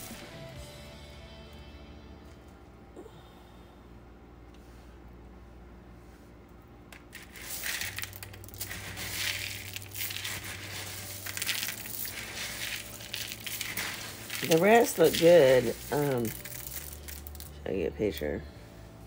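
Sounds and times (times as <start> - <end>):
dry beans rattling in a colander: 6.9 - 18.4.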